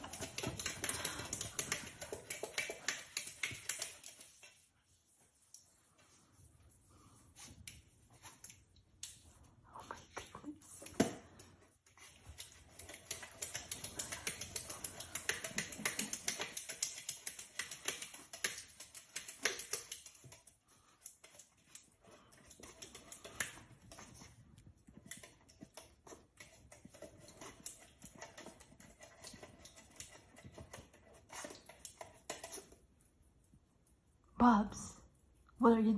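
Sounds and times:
puppy lapping water: 0.0s - 4.6s, 11.9s - 32.9s.

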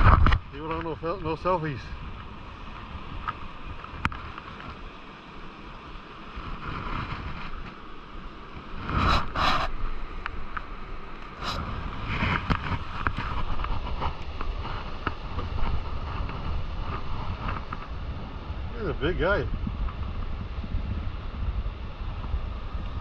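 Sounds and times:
steady surf: 0.0s - 23.0s
wind buffeting microphone: 0.0s - 23.0s.

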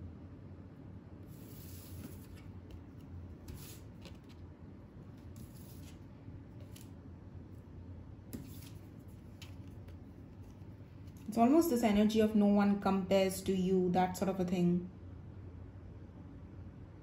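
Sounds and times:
cards sliding across a tabletop: 1.2s - 4.4s, 5.1s - 6.9s, 8.3s - 11.3s.

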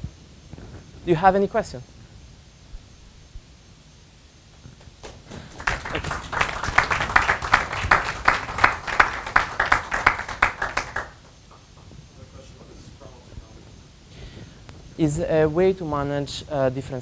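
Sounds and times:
audience applauding: 4.9s - 11.6s.

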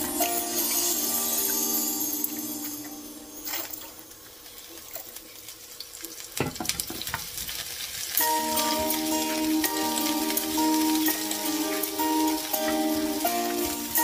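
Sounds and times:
background music: 0.0s - 4.1s, 8.2s - 14.0s
light frying sizzle: 0.0s - 14.0s
metal tongs scraping a pan: 8.2s - 14.0s.

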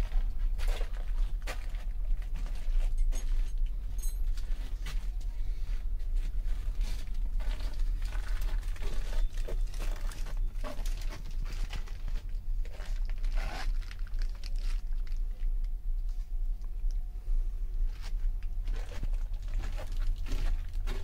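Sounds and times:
fabric rustling and handling noise: 0.0s - 15.2s
low rumble: 0.0s - 21.0s.

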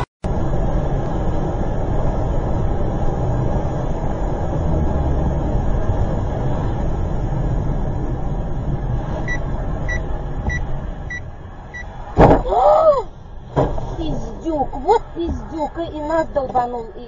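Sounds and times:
car cabin road noise: 0.0s - 17.0s
loud collision thump: 12.1s - 12.5s
person crying out: 12.4s - 13.1s.

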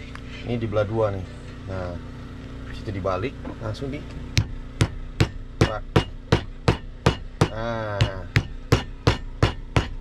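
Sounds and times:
beans being pounded: 4.4s - 10.0s.

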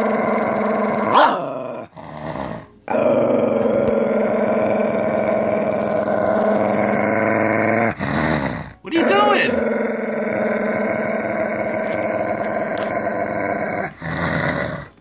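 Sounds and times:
dog growling: 0.0s - 15.0s
dog yelping: 1.1s - 1.5s.

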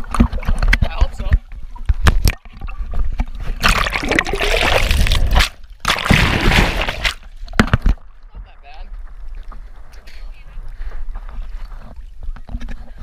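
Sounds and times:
river water splashing: 3.6s - 7.8s.

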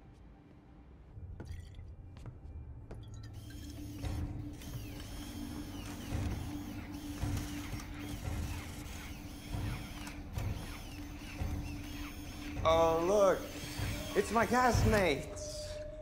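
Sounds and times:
mechanical whirring and clicking: 3.4s - 15.3s.

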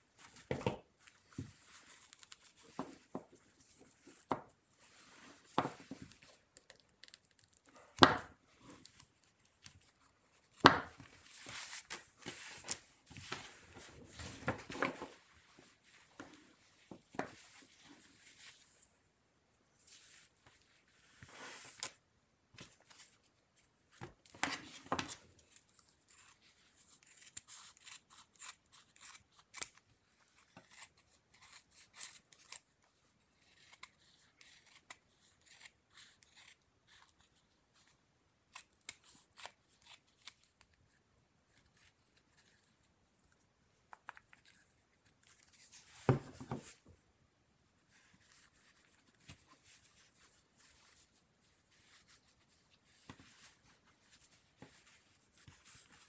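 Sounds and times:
scissors snipping fur: 27.0s - 29.8s.

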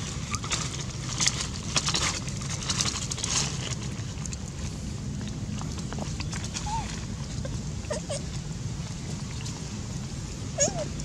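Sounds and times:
steady low rumble: 0.0s - 11.0s
monkeys scratching and rustling: 5.6s - 9.7s.

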